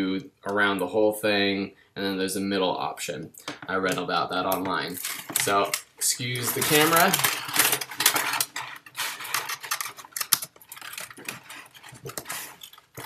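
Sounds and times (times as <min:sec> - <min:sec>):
hands fumbling with cable: 0:03.4 - 0:13.0.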